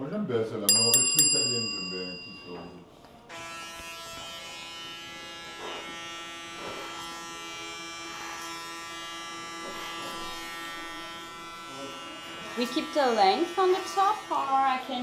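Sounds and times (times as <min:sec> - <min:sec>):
hair clipper buzzing: 0:03.3 - 0:15.0.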